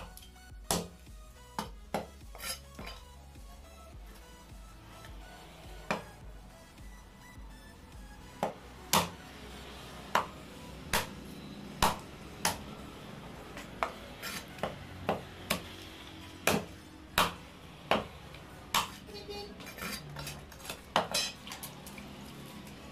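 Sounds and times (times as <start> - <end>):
heavy knife chopping on wood: 0.0 - 1.0, 1.6 - 3.0, 5.8 - 6.1, 8.4 - 9.2, 10.9 - 11.2, 11.8 - 12.6, 13.8 - 15.7, 16.4 - 18.1, 18.7 - 19.0.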